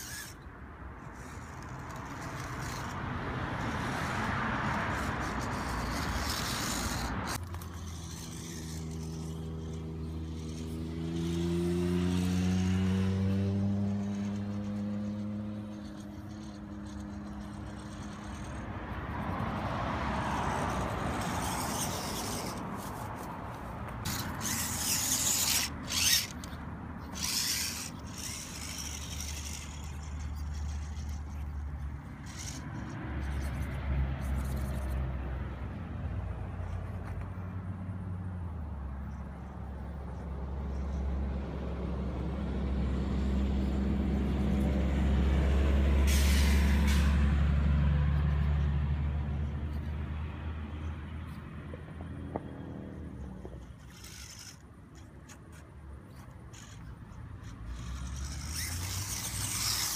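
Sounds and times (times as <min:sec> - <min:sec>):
toy car motor hum: 0:00.0 - 0:35.7, 0:36.6 - 0:37.5, 0:38.6 - 0:59.9
tyres grinding on stone: 0:01.0 - 0:34.9, 0:53.2 - 0:59.9.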